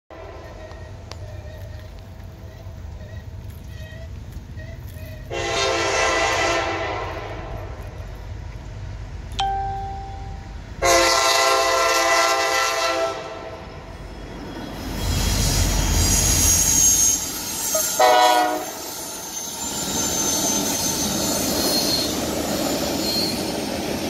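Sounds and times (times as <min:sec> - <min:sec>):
low rumble of train: 0:00.1 - 0:24.0
locomotive air horn blasts: 0:05.2 - 0:07.7, 0:10.8 - 0:13.6, 0:17.7 - 0:18.9.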